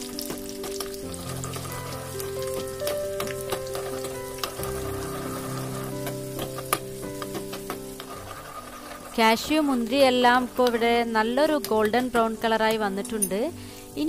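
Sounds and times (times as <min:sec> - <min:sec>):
nuts sizzling in hot ghee: 0:00.0 - 0:14.0.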